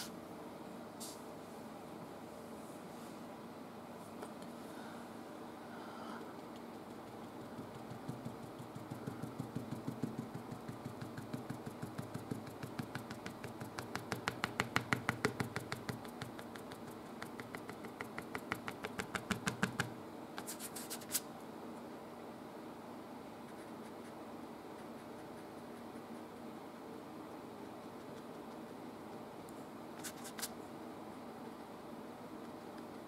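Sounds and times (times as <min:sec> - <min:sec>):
paint brush tapping strokes: 0:06.2 - 0:20.8.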